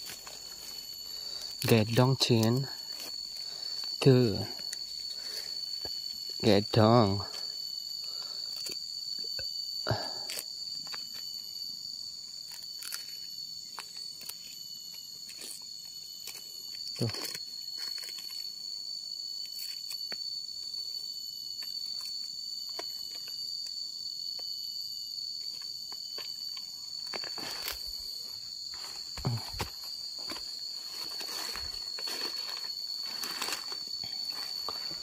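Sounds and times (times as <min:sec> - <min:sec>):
footsteps on dry leaves: 0:00.0 - 0:01.6, 0:27.1 - 0:35.0
leaves rustling: 0:00.0 - 0:09.0, 0:26.9 - 0:35.0
insects droning: 0:00.0 - 0:35.0.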